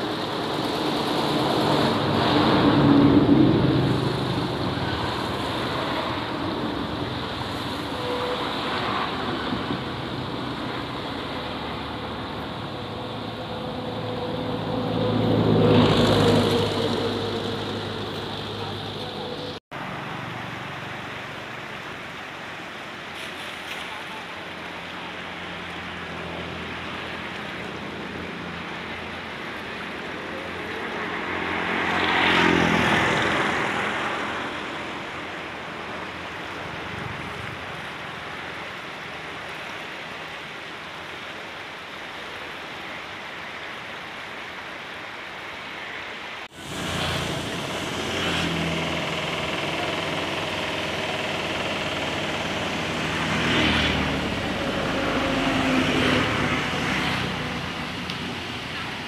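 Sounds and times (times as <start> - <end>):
steady outdoor noise: 0.0 - 59.0
swollen river rushing: 0.0 - 59.0
motor vehicle passing: 8.6 - 19.6, 26.3 - 35.2, 46.5 - 58.9.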